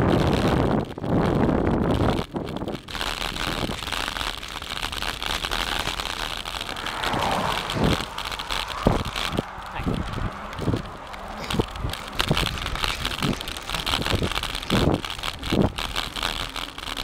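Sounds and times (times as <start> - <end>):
air and tyre noise: 0.0 - 17.0
car passing: 5.3 - 17.0.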